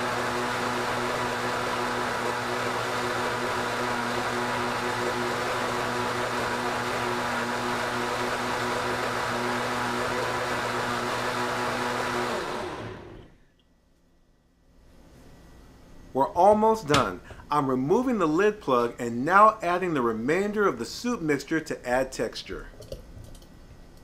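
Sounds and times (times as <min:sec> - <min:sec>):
blender running at high speed: 0:00.0 - 0:13.4.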